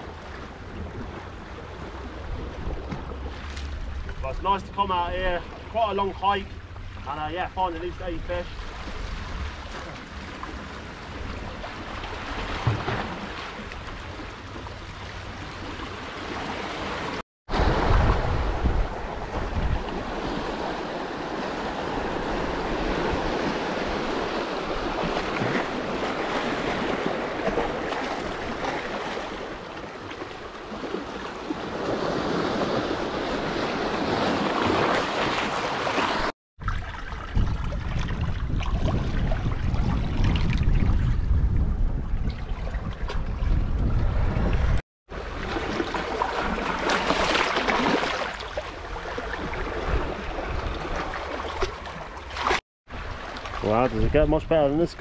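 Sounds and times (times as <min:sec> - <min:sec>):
wind buffeting microphone: 0:17.5 - 0:28.6, 0:36.6 - 0:44.8.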